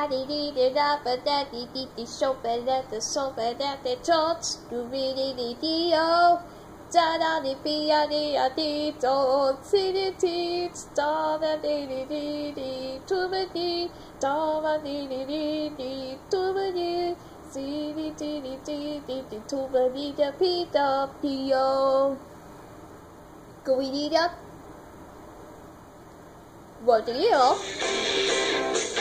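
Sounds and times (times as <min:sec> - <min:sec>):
woman singing: 0:00.0 - 0:22.2.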